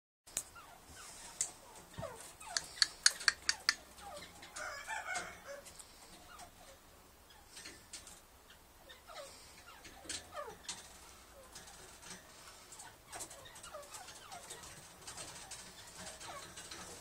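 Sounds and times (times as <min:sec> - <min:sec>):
bird chattering: 0:00.5 - 0:04.4, 0:12.4 - 0:17.0
sharp clicks: 0:02.5 - 0:03.8.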